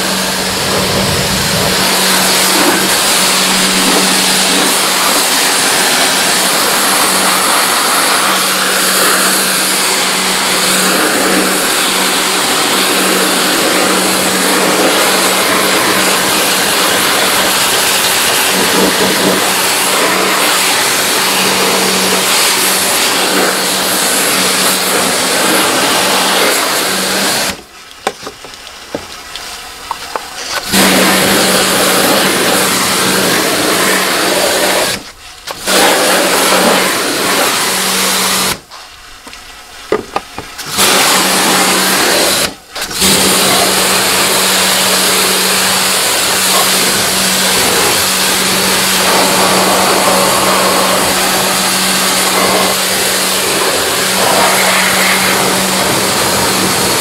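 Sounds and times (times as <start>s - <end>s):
water spray hiss: 0.0s - 27.9s, 28.6s - 39.0s, 40.5s - 57.0s
pressure washer motor hum: 0.0s - 57.0s.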